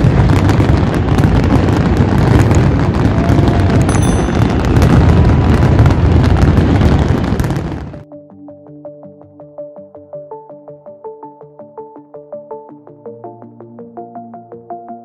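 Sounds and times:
fireworks crackling and booming: 0:00.0 - 0:08.0.

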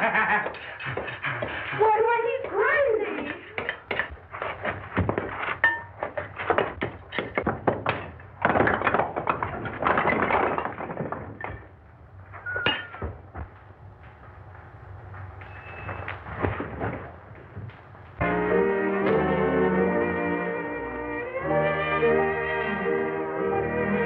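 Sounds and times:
bricks knocking and falling: 0:03.2 - 0:14.3, 0:15.2 - 0:18.2.

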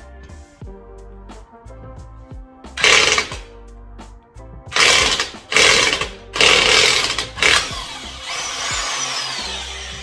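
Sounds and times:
impact wrench hammering: 0:02.8 - 0:03.5, 0:04.8 - 0:10.0.

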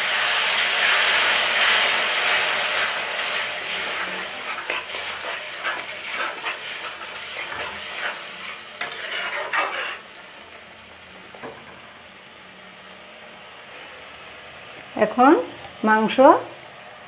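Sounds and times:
masala sizzling in oil: 0:00.0 - 0:17.0
metal spatula scraping a pan: 0:01.6 - 0:10.1.

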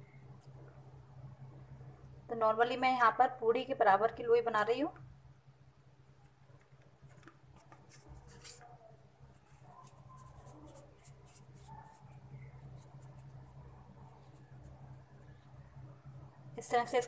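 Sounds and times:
steady low hum: 0:00.0 - 0:17.0
hands rubbing dough: 0:06.2 - 0:15.7.

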